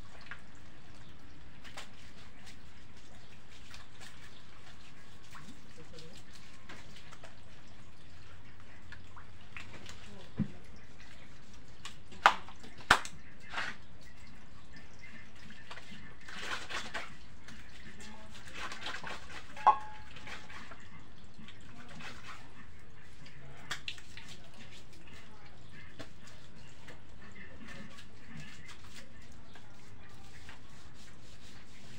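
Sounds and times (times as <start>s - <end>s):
water dripping: 0.0s - 31.9s
hands scrubbing lather: 21.9s - 31.9s.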